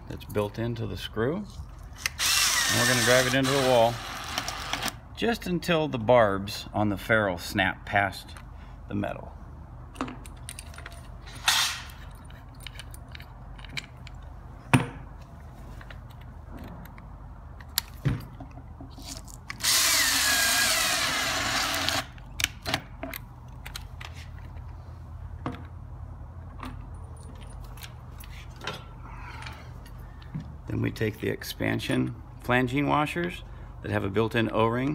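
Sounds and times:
power drill whining: 2.0 - 4.9, 19.6 - 22.1
tool handling clicks and knocks: 9.9 - 19.6, 22.4 - 24.8, 26.4 - 30.6.

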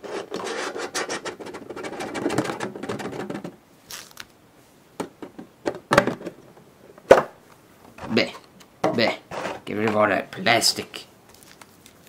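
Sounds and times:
plastic packaging crinkling: 3.8 - 4.4, 11.3 - 12.0.

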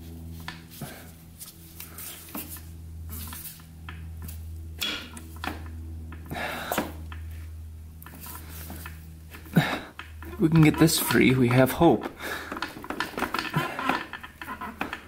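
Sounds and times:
low hum: 0.0 - 15.0
metallic clicks and clatters: 9.9 - 15.0.

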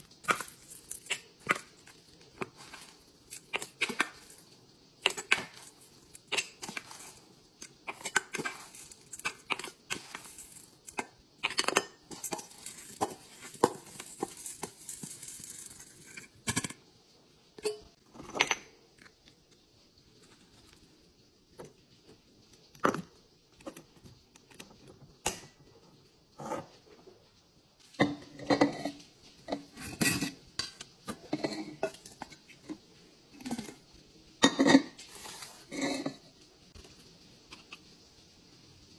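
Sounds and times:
beads pouring and rattling: 0.0 - 4.5, 8.0 - 11.0, 12.1 - 16.2
metal scoop clinking on bowl: 7.9 - 16.7.

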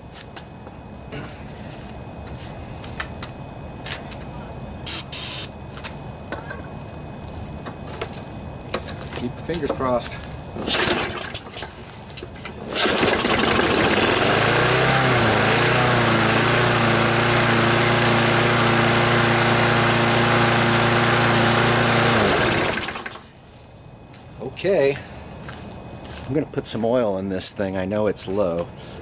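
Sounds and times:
lawnmower engine running: 10.6 - 23.3.

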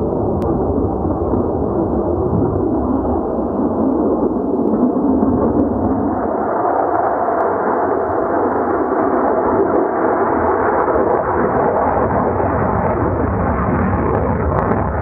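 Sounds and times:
jet engine roar: 0.0 - 15.0.

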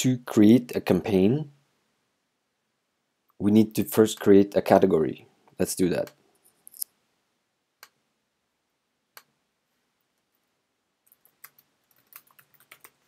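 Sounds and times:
computer mouse clicks: 11.0 - 13.0
keyboard keystrokes: 11.1 - 13.0.

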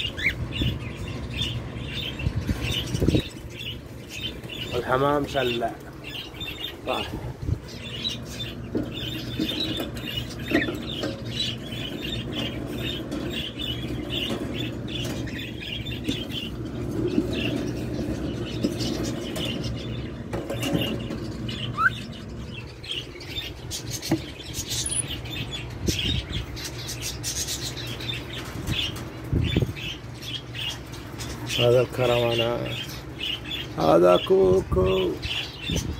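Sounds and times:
small birds chirping: 0.0 - 35.9
steady low hum: 0.0 - 35.9.

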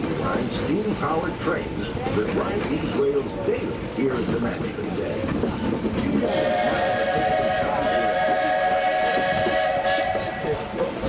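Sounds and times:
train running noise: 0.0 - 11.0
steam locomotive whistle: 6.2 - 11.0.

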